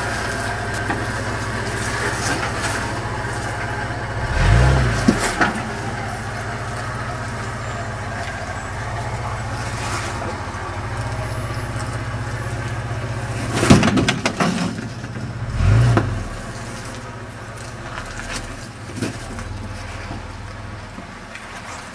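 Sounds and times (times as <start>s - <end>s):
truck engine rumbling: 0.0s - 21.9s
sharp crack and knocks: 13.4s - 15.2s.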